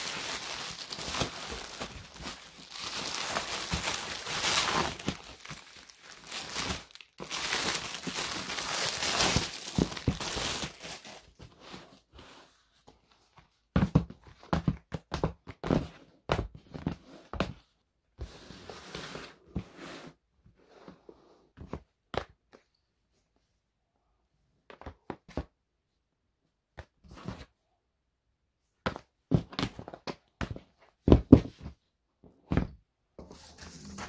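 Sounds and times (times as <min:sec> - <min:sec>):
cardboard boxes knocking on table: 0:30.4 - 0:31.7.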